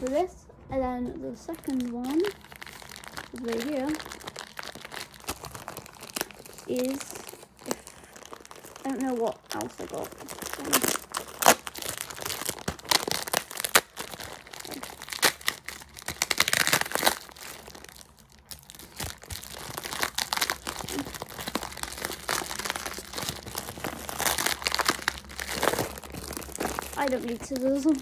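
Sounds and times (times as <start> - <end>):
plastic mailer bag crinkling: 1.3 - 28.0
tape peeling off: 9.6 - 28.0.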